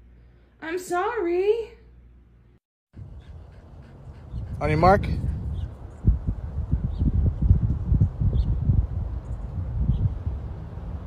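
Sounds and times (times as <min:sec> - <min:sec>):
wind rumble on microphone: 0:03.0 - 0:11.0.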